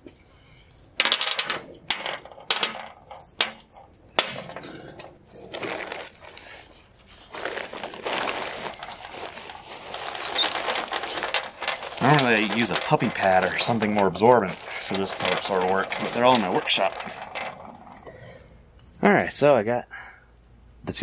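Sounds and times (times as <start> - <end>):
paper and plastic crumpling: 5.5 - 18.0.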